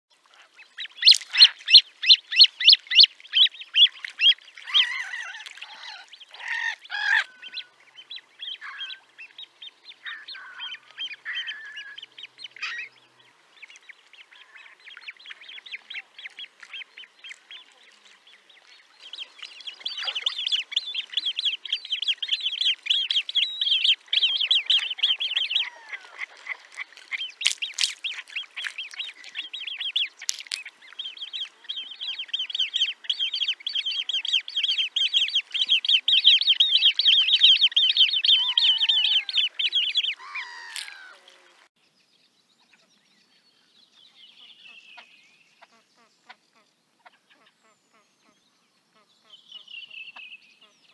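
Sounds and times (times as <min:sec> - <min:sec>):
juvenile grebe begging calls: 0:00.4 - 0:07.7, 0:08.4 - 0:09.1, 0:10.0 - 0:12.9, 0:19.2 - 0:41.6.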